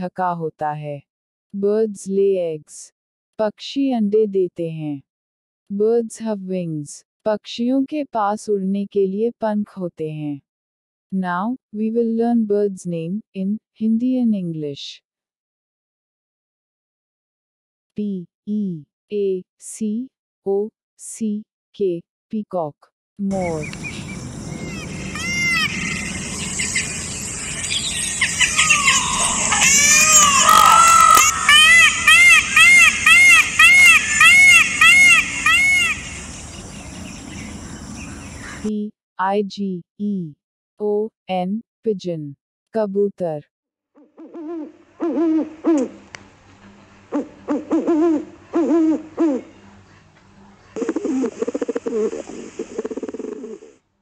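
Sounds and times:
steady outdoor hiss: 23.3s - 38.7s, 44.7s - 53.8s
pigeon cooing: 23.4s - 27.0s, 28.2s - 36.4s, 44.0s - 46.0s, 46.6s - 49.6s, 50.8s - 53.8s
peafowl calling: 23.4s - 38.7s, 44.2s - 49.7s.

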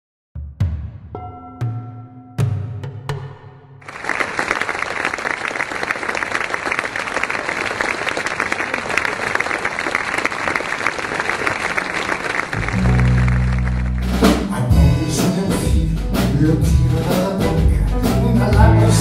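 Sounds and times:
audience applauding: 3.8s - 14.6s.

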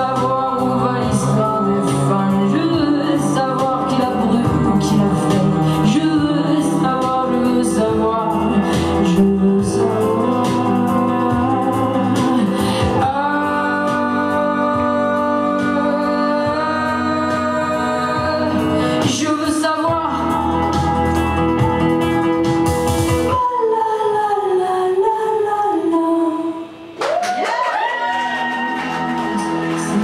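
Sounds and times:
woman singing: 0.0s - 22.4s, 23.1s - 30.0s
electric guitar: 0.0s - 23.8s, 26.7s - 30.0s.

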